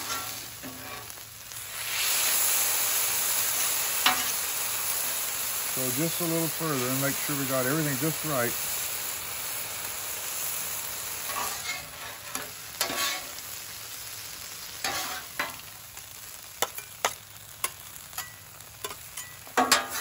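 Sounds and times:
metal spatulas scraping griddle: 0:00.0 - 0:01.2, 0:11.3 - 0:13.4, 0:14.8 - 0:15.6, 0:18.8 - 0:20.0
vegetables sizzling on griddle: 0:00.0 - 0:20.0.

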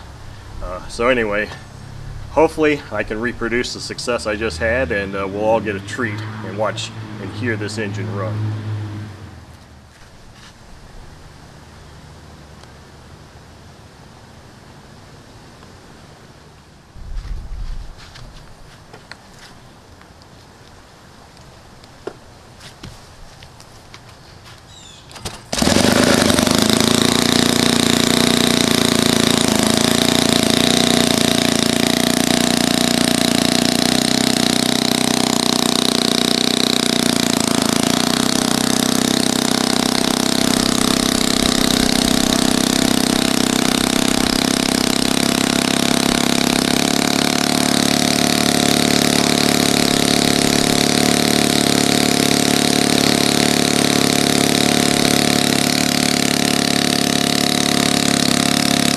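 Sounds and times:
model engine running: 0:00.0 - 0:08.5, 0:25.2 - 0:58.9.

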